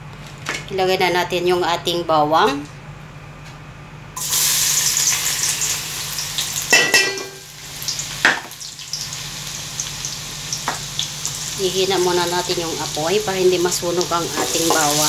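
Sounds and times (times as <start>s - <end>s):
garlic sizzling in hot oil: 4.2s - 15.0s.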